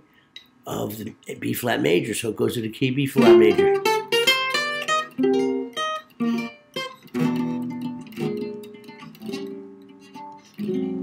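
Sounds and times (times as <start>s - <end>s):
guitar playing chords and notes: 3.2s - 11.0s.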